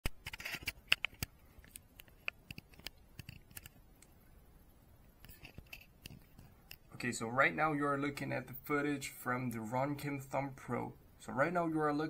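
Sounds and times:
fingers clicking and tapping camera: 0.0s - 4.1s.

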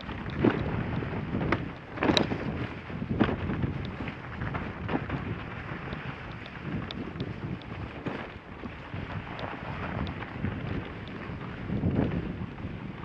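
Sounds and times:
faint small ticks: 0.0s - 0.7s, 3.2s - 4.1s, 5.8s - 8.4s, 9.3s - 11.4s
wind rumbling on microphone: 0.0s - 13.0s.

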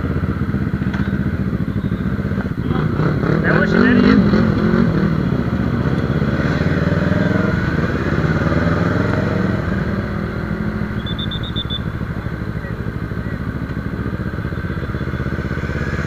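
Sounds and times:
motorcycle engine running: 0.0s - 16.0s
high-pitched beeps: 10.7s - 13.4s.

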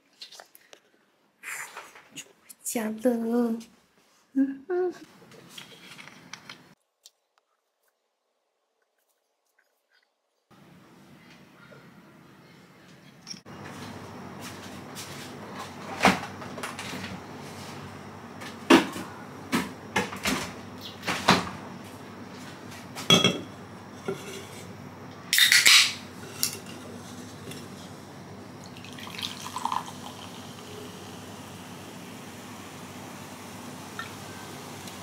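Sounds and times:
glass set down on stone: 23.1s - 23.5s
cola pouring into a glass: 28.6s - 31.0s.

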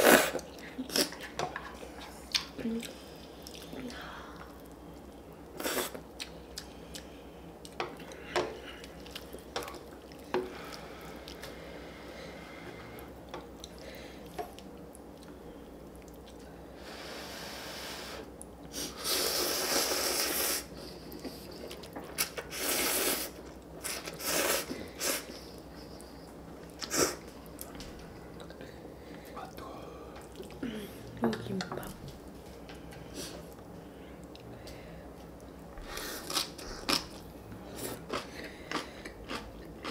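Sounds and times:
slurping noodles: 18.8s - 20.7s, 22.5s - 25.3s.

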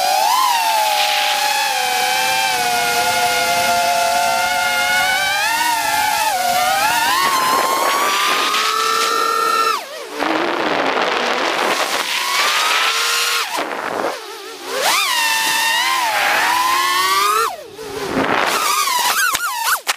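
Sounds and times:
quadcopter motors whining: 0.0s - 19.9s.

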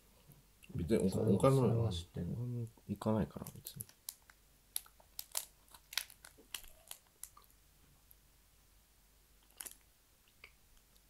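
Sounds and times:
crunchy snack being chewed: 4.1s - 7.5s, 9.4s - 9.8s.

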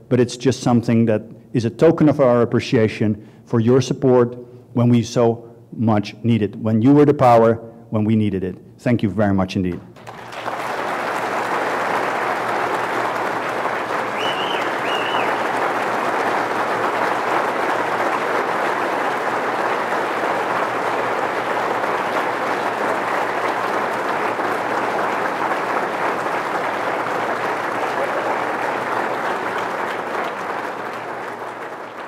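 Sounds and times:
crowd applauding: 9.9s - 32.0s
short whistles: 14.1s - 15.5s.

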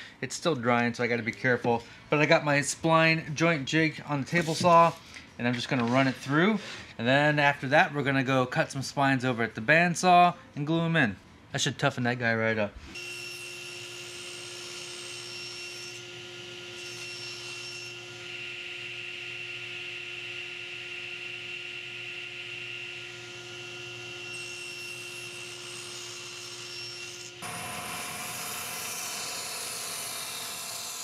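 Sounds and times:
table saw humming: 13.0s - 31.0s
bandsaw cutting: 24.2s - 31.0s.

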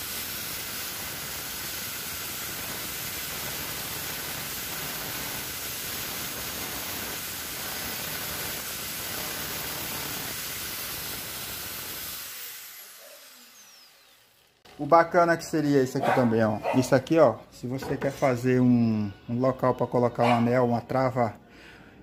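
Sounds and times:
angle grinder cutting steel bolt: 0.1s - 14.8s.

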